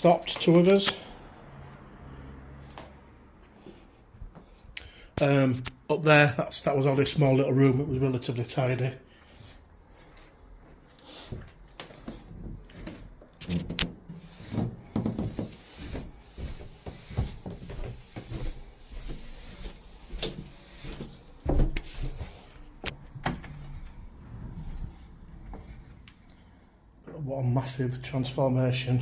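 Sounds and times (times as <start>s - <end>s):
footsteps on carpeted stairs: 2.6s - 4.6s, 9.2s - 26.0s.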